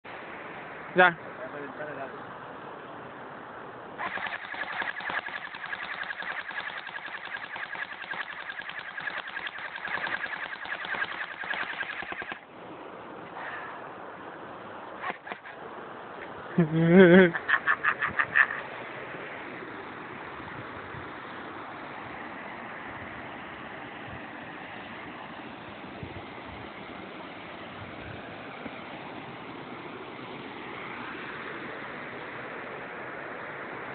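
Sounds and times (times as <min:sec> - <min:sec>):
mechanical whine: 0:04.0 - 0:12.4
rapid clicking gunshots: 0:04.0 - 0:12.5, 0:15.0 - 0:15.6.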